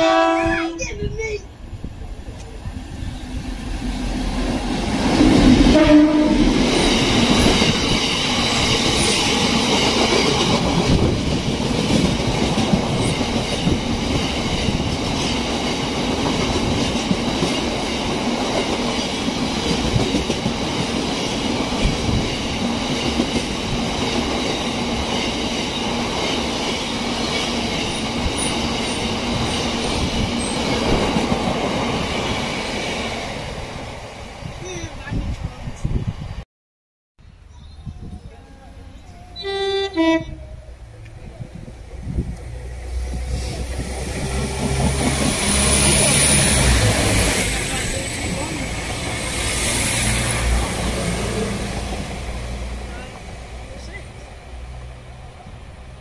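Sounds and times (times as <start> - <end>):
train horn blast: 0.0 - 0.8, 5.6 - 6.7, 39.4 - 40.6.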